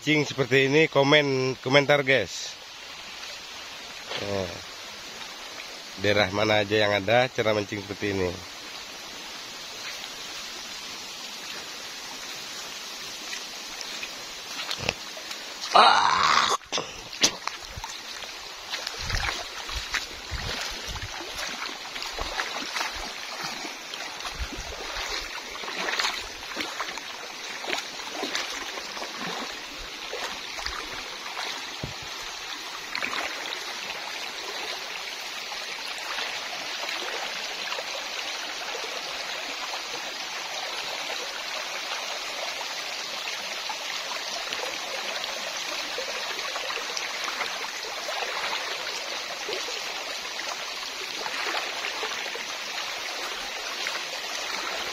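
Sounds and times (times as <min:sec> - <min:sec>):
river water rushing over stones: 0:00.0 - 0:54.9
person wading through water: 0:13.2 - 0:37.9, 0:44.5 - 0:54.9.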